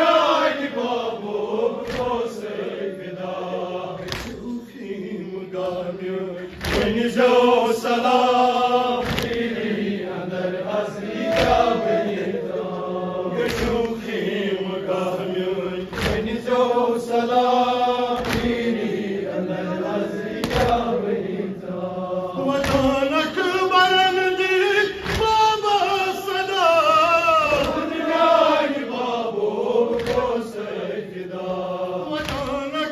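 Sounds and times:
group of men chanting: 0.0 - 32.9
unison chest-beating slaps: 1.6 - 2.7, 3.9 - 4.6, 6.5 - 10.0, 11.0 - 12.1, 13.3 - 19.1, 20.2 - 21.1, 22.5 - 23.2, 24.9 - 25.6, 27.4 - 28.0, 29.0 - 30.9, 32.1 - 32.8
lead man reciting: 10.5 - 18.6, 22.2 - 28.2, 31.8 - 32.9.

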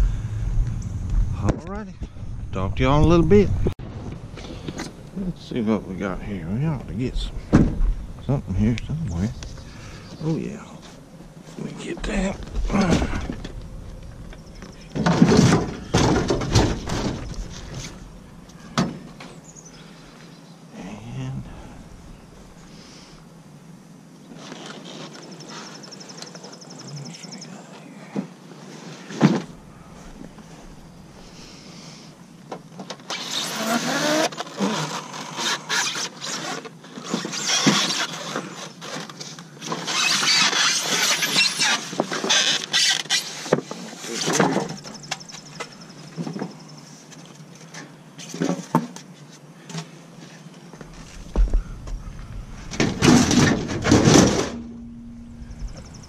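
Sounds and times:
junk clattering and rattling: 12.0 - 18.0, 51.2 - 56.0
loud bang: 51.4 - 56.0.

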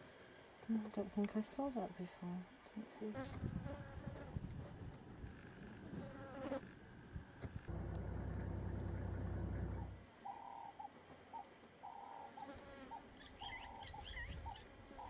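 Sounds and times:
insect buzzing: 3.1 - 6.8, 11.8 - 15.0.

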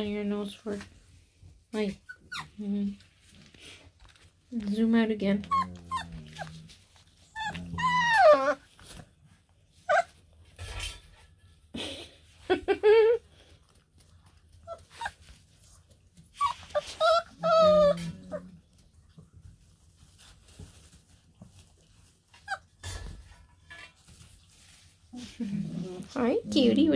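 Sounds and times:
puppies whining and yelping: 2.0 - 2.7, 5.4 - 10.4, 14.5 - 18.9, 22.3 - 23.1.

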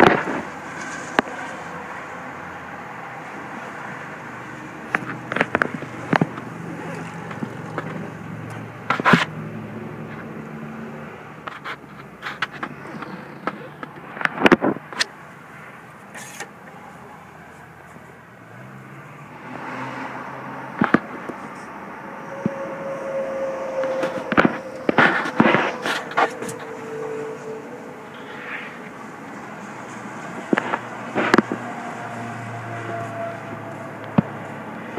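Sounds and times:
sharp knocks and scrapes: 0.0 - 1.7, 4.8 - 9.4, 11.4 - 16.9, 20.8 - 34.5
outdoor background noise: 0.0 - 34.9
low engine-like hum: 14.8 - 34.9.

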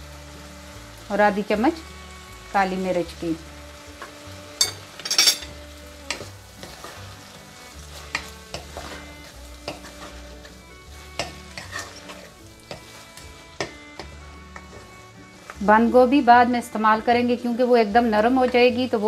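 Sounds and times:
faint sizzle: 0.0 - 19.0
wooden spoon scraping a pot: 3.9 - 16.1.

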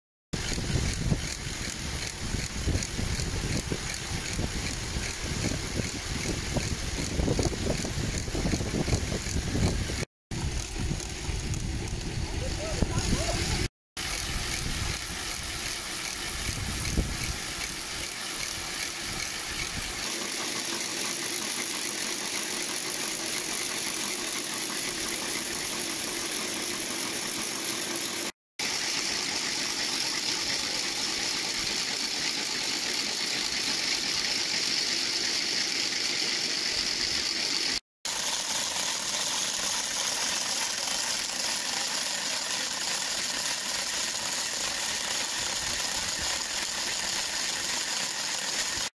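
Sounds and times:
wooden ratchets clattering: 0.4 - 12.0, 14.0 - 37.8.

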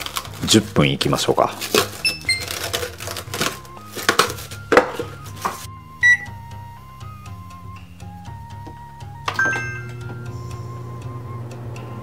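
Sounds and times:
cling wrap crinkling and tearing: 0.0 - 4.7
light background music: 0.0 - 12.0
short beep: 6.0 - 6.4.

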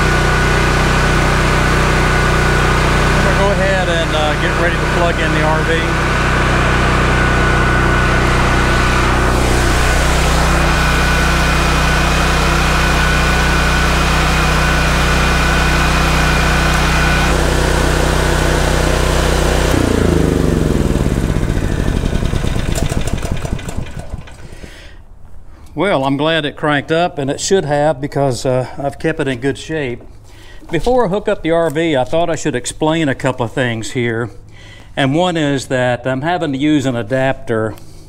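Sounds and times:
portable generator running: 0.0 - 25.0.

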